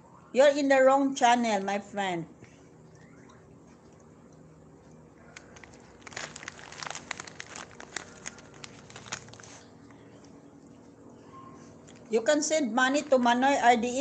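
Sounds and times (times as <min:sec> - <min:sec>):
crinkling: 0:05.2 - 0:11.0, 0:11.6 - 0:12.2.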